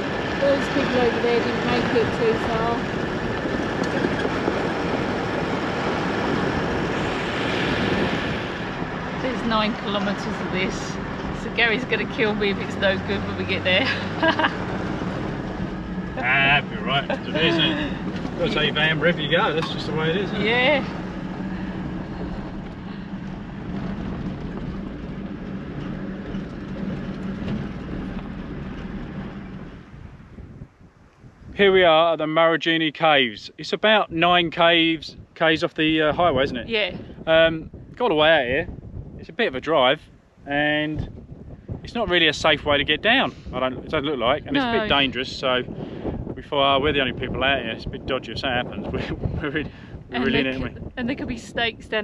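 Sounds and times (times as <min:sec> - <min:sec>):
tyres rumbling on gravel: 0:00.0 - 0:30.3
vehicle engine running: 0:00.0 - 0:31.0, 0:33.2 - 0:52.0.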